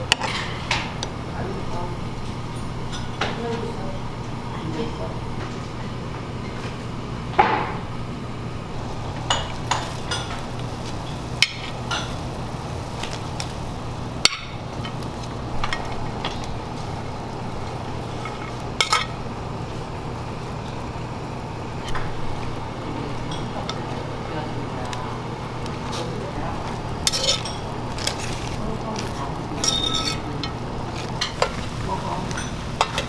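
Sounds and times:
dishes and utensils clinking: 0.0 - 1.0, 2.5 - 3.7, 9.2 - 12.2, 15.6 - 16.5, 18.2 - 19.2, 23.1 - 23.9, 25.9 - 33.0
steady low hum: 0.0 - 33.0.

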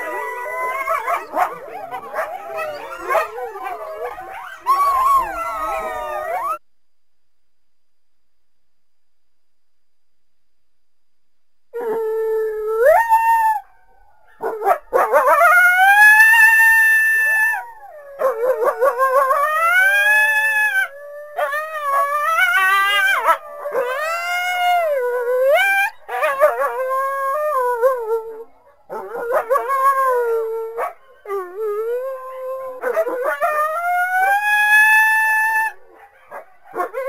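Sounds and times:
coyote howling: 0.0 - 6.6, 15.0 - 28.2, 29.0 - 35.9.

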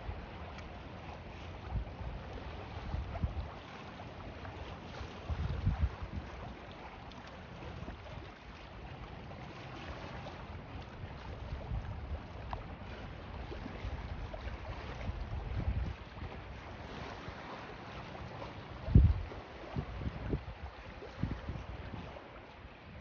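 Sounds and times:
choppy waves against a pier: 0.0 - 23.0
wind buffeting microphone: 1.3 - 4.1, 4.9 - 6.7, 10.5 - 23.0.

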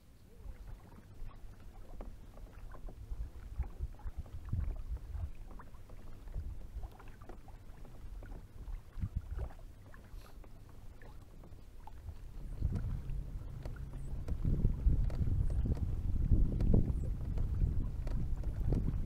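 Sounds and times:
waves lapping against kayak hull: 0.0 - 19.0
low rumble: 12.1 - 19.0.

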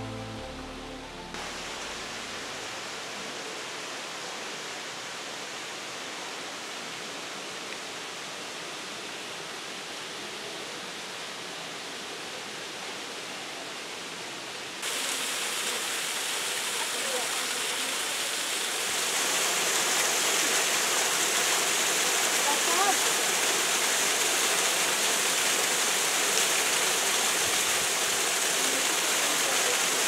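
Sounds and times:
mountain water rushing: 0.0 - 8.6, 14.8 - 30.0.

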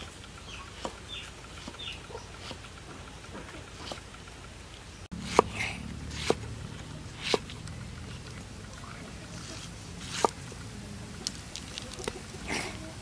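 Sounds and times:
steady low hum: 0.0 - 13.0
cleaver chopping on wooden block: 5.1 - 6.5, 7.1 - 7.6, 10.0 - 10.4.

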